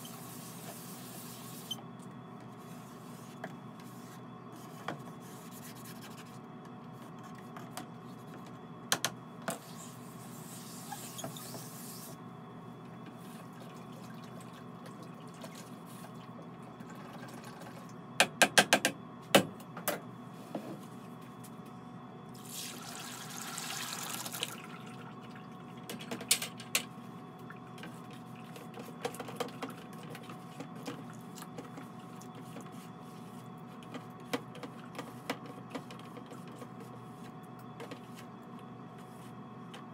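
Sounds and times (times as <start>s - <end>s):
liquid pouring: 22.4s - 25.0s.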